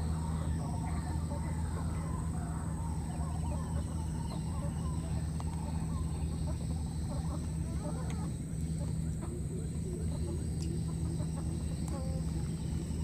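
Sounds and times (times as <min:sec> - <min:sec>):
bird calls: 0:00.0 - 0:13.0
low hum: 0:00.0 - 0:13.0.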